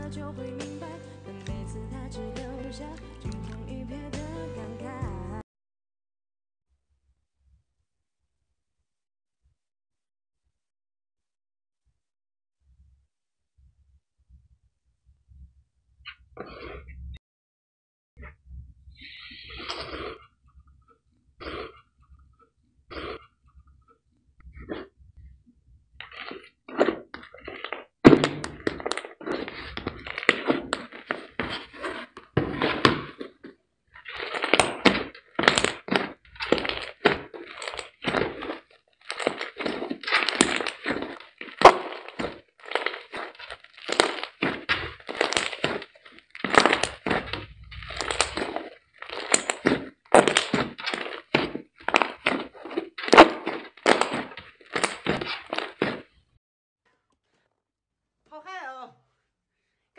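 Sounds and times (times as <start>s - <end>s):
hands squishing slime: 26.0s - 56.2s
crackling pops of slime: 34.1s - 55.9s.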